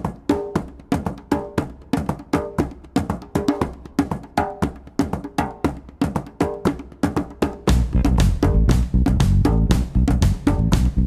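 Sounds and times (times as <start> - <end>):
light percussive music: 0.0 - 11.0
heavy bass: 7.7 - 11.0.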